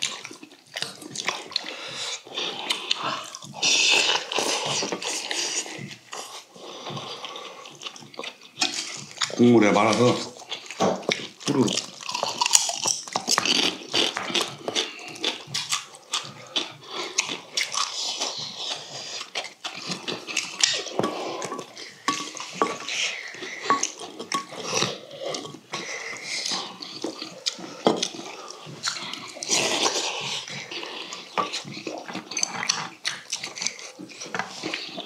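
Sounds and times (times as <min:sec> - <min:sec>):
slurping and chewing: 0:00.0 - 0:35.0
utensils clinking on steel bowls: 0:20.7 - 0:24.8.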